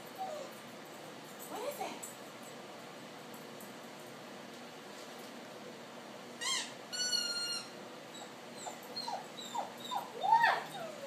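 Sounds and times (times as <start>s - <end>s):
dog whining: 0.2s - 0.6s, 6.4s - 11.0s.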